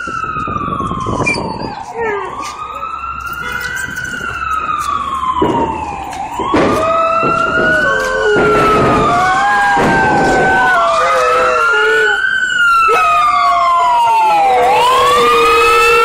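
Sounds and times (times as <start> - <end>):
emergency siren wailing: 0.0 - 16.0
dog howling: 1.7 - 2.4, 6.8 - 12.2, 12.9 - 16.0.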